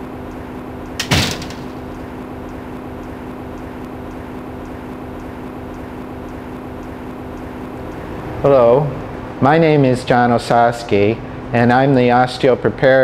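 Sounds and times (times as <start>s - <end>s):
mechanical hum: 0.0s - 13.0s
faint high ticks: 2.4s - 8.0s.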